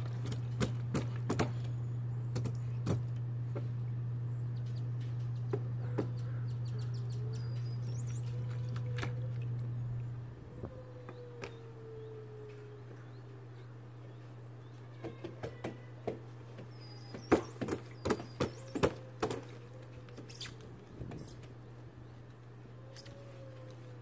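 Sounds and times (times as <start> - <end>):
low hum: 0.0 - 15.0
hands slapping water: 8.1 - 9.7
faint bird chirps: 20.2 - 20.6.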